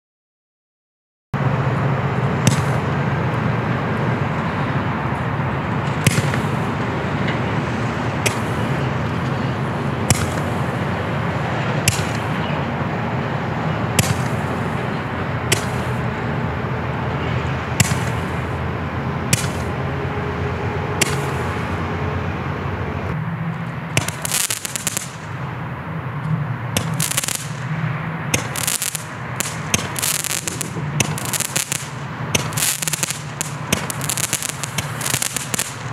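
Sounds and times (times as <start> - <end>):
fireworks crackling: 2.2 - 4.5, 5.3 - 16.4, 17.6 - 19.9, 21.0 - 21.8, 23.5 - 25.8, 26.7 - 35.9.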